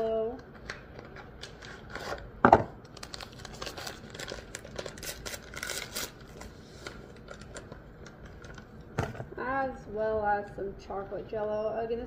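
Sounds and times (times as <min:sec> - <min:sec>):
paper packet tearing and crinkling: 0:02.9 - 0:07.6.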